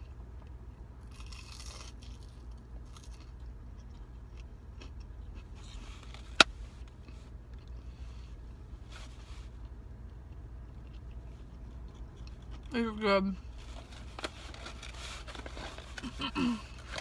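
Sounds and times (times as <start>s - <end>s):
steady low hum: 0.0s - 17.0s
crunchy chewing: 1.0s - 6.4s, 9.6s - 12.7s.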